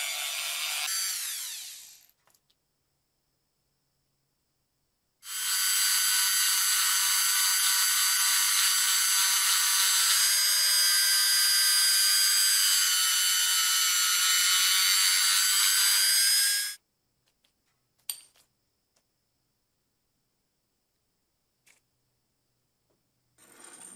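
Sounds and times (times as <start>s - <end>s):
rotary tool whining: 0.0s - 2.2s, 5.3s - 16.8s.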